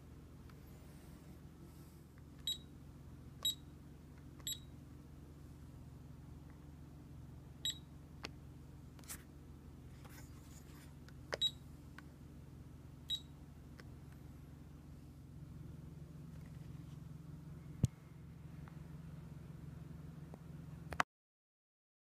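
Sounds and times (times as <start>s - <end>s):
multimeter short high beeps: 2.4s - 2.7s, 3.4s - 3.6s, 4.4s - 4.7s, 7.6s - 7.9s, 11.4s - 11.6s, 13.1s - 13.3s.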